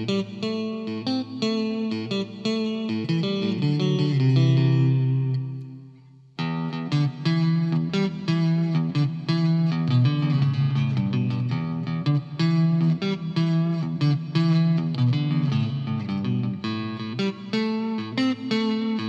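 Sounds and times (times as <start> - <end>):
electric guitar chords strummed: 0.0 - 19.0.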